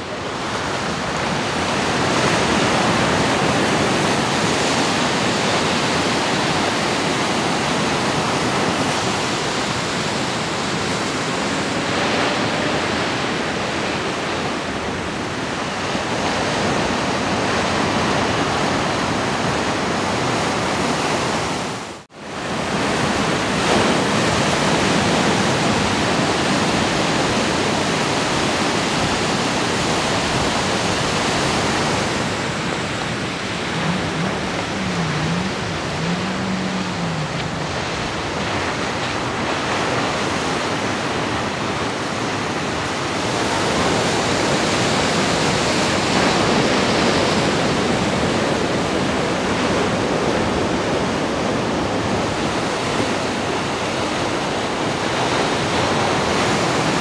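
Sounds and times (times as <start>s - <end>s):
waves breaking on shore: 0.0s - 57.0s.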